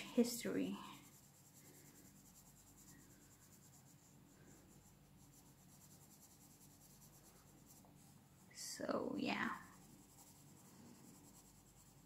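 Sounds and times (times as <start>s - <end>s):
faint low hum: 0.0s - 12.0s
pencil scratching on paper: 0.0s - 12.0s.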